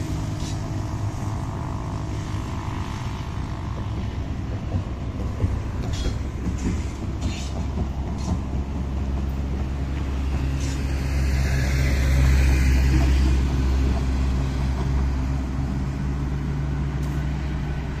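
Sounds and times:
freight train rolling: 0.0s - 18.0s
heavy traffic drone: 0.0s - 18.0s
truck engine: 0.0s - 18.0s.

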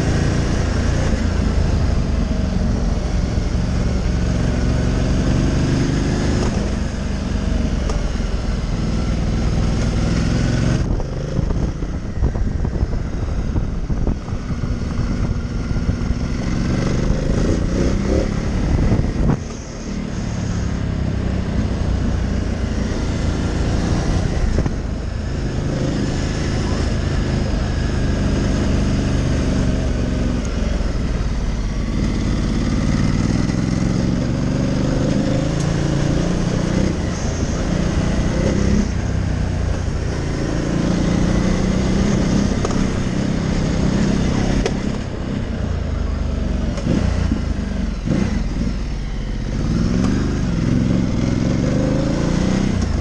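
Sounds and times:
steady rushing noise: 0.0s - 46.2s
motorcycle engine revving: 0.0s - 53.0s.

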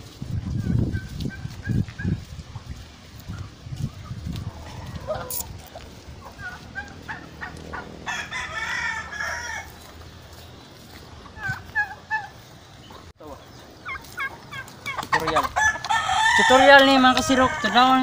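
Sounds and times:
rooster crowing: 6.8s - 9.8s, 15.5s - 18.0s.

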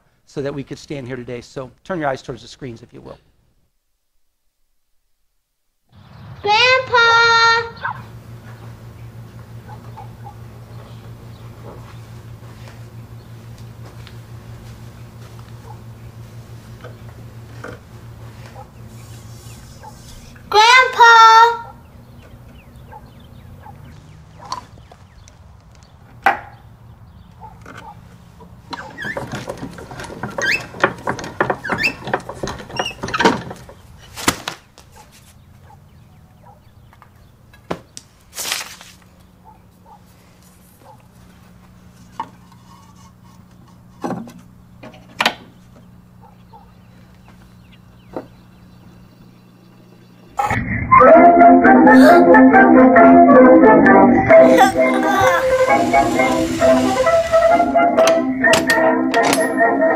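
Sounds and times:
low steady hum: 6.6s - 34.1s
gramophone clicks and knocks: 8.1s - 18.9s, 27.2s - 34.1s, 54.6s - 59.8s
wooden knocks and clicks: 27.3s - 33.8s
loud gramophone music: 50.4s - 59.9s.

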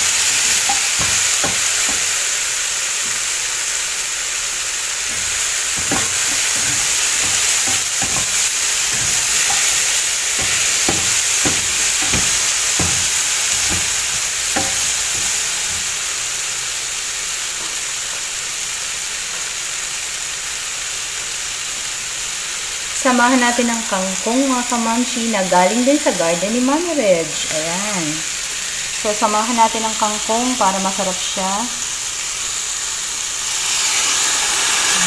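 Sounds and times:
vegetables sizzling in a frying pan: 0.0s - 35.0s
spatula scraping a pan: 5.1s - 16.1s.

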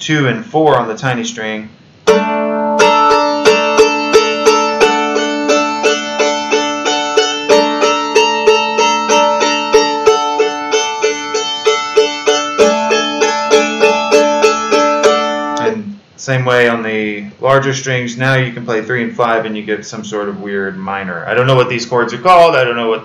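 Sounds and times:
mandolin strumming: 2.0s - 15.8s.

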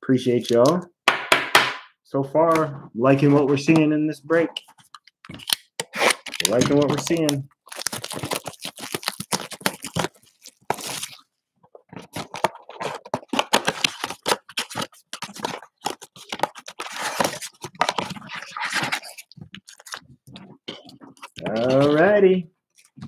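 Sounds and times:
plastic wrappers crinkling: 4.6s - 23.0s.

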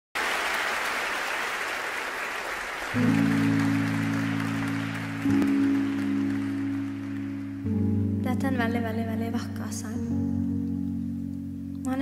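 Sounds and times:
audience applauding: 0.2s - 8.1s
sustained low chord: 3.0s - 12.0s.

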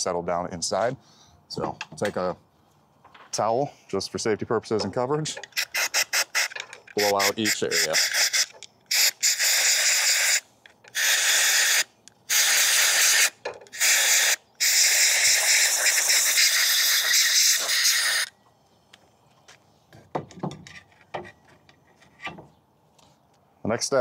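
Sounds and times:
air blow gun hissing: 5.6s - 18.3s.

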